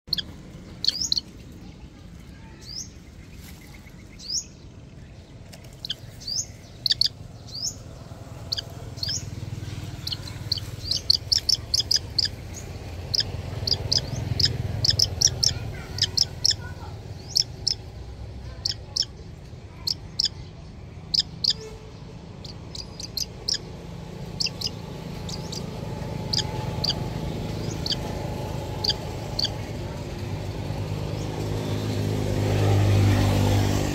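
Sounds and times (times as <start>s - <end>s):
young hawk chirping: 0.1s - 1.3s, 5.7s - 21.7s, 22.4s - 30.2s
low steady rumble: 0.1s - 33.0s.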